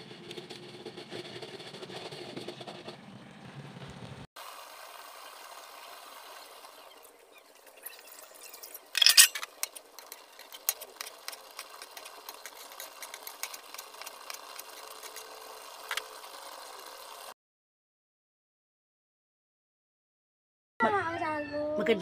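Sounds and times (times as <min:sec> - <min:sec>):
pan crackling: 0:00.0 - 0:03.0, 0:04.9 - 0:17.3.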